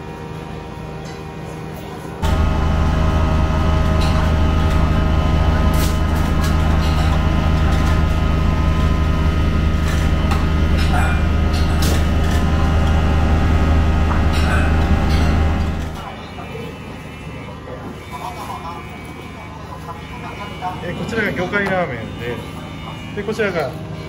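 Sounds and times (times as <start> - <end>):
exhaust hood and burners droning: 2.2 - 16.1
utensils and pots clattering: 3.6 - 16.2.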